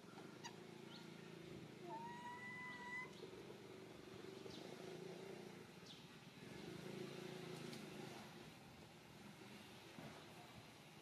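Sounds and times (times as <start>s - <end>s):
thin whistled call: 1.8s - 3.2s.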